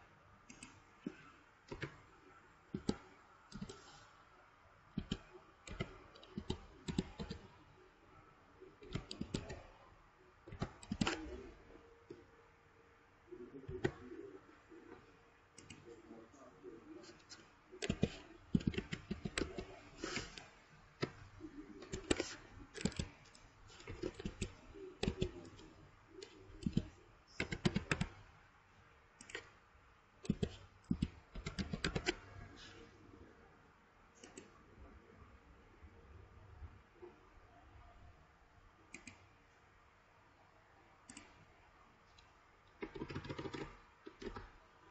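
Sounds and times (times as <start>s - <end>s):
computer keyboard typing: 0.5s - 2.1s, 2.7s - 4.1s, 4.9s - 7.6s, 8.8s - 9.7s, 10.5s - 11.6s, 17.1s - 28.3s, 29.2s - 29.6s, 30.2s - 32.7s, 42.2s - 44.6s.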